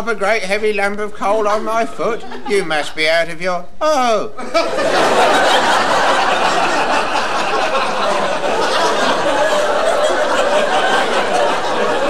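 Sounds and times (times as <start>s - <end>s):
audience laughing: 2.0s - 2.7s, 4.4s - 12.0s.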